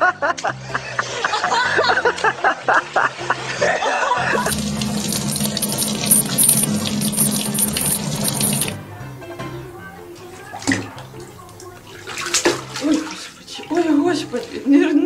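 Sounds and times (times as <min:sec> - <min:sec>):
water tap running into sink: 0:04.4 - 0:08.8.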